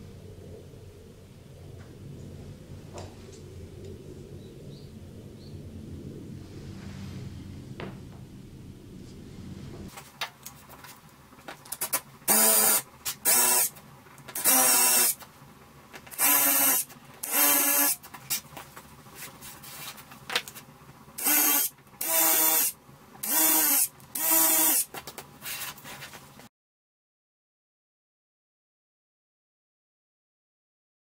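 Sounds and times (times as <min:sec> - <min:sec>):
cordless drill drilling wood: 0:12.3 - 0:13.7, 0:14.4 - 0:15.2, 0:16.1 - 0:18.0, 0:21.2 - 0:24.9.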